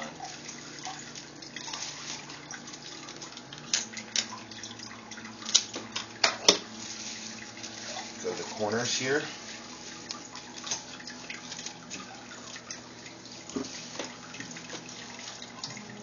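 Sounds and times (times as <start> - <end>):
plastic crinkling: 5.4 - 12.5.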